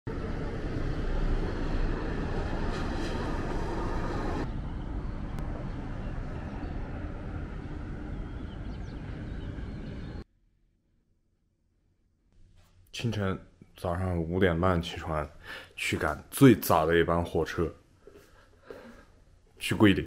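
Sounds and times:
distant road traffic: 0:00.1 - 0:10.2.

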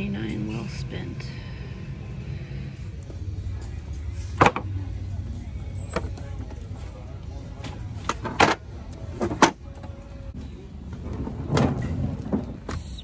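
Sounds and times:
low background din: 0:00.0 - 0:12.8
objects clacking and knocking: 0:07.6 - 0:09.9.

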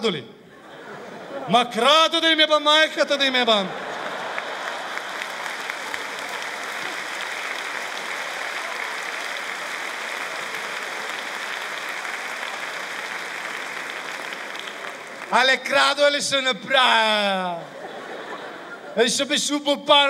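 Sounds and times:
audience applauding: 0:03.0 - 0:16.0.

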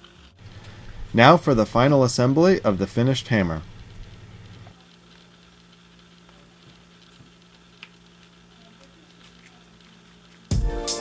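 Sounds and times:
low hum: 0:00.0 - 0:05.4.

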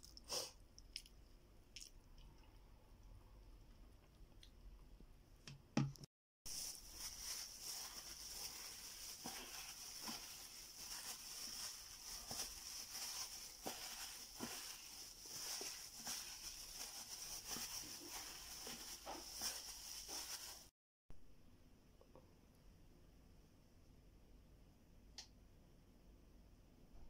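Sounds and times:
plastic glove squishing and crinkling: 0:06.5 - 0:20.8.

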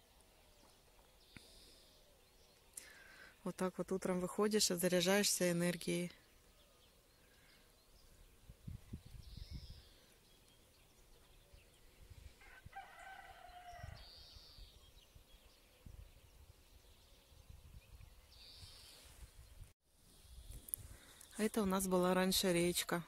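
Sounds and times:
small birds chirping: 0:00.0 - 0:23.0
faint rooster crowing: 0:12.4 - 0:14.4.

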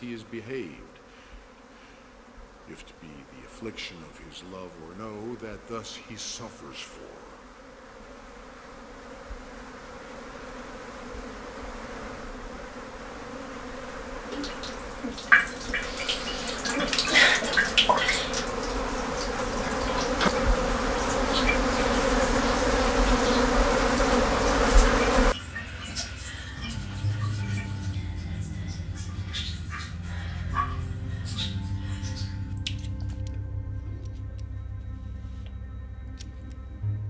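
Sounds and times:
low buzzing drone: 0:00.0 - 0:37.0.

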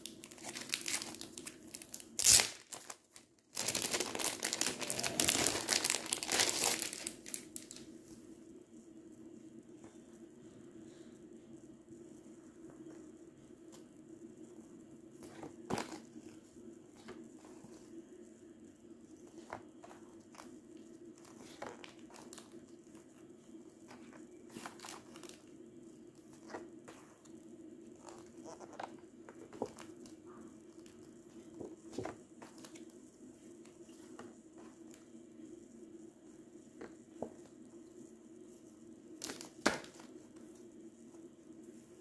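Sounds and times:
paper sheets rustling: 0:00.0 - 0:07.8
steady background hum: 0:00.0 - 0:42.0.

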